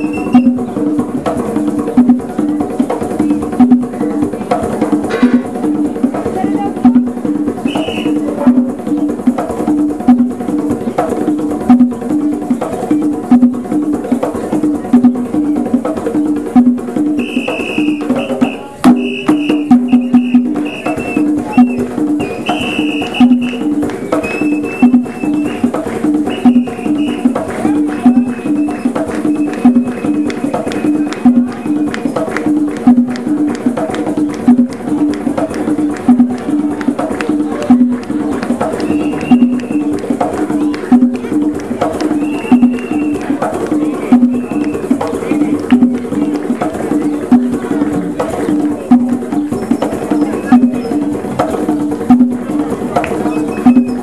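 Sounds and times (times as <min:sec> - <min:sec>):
hand drums in fast rhythm: 0:00.0 - 0:54.0.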